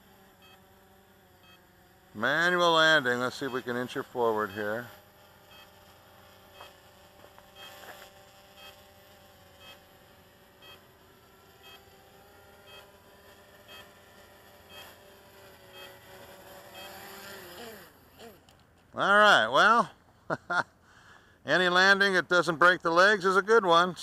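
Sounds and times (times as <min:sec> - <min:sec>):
drone motors humming: 0:00.0 - 0:18.9.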